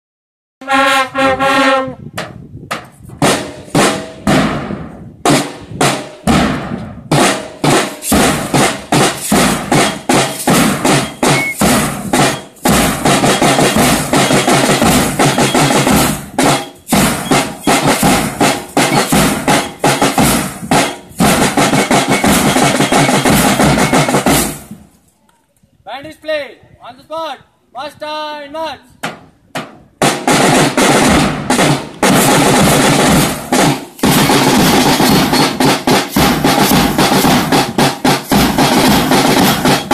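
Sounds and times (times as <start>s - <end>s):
bugles playing: 0.6s - 2.0s, 7.6s - 24.6s
snare and bass drumming: 2.2s - 24.8s, 29.0s - 39.9s.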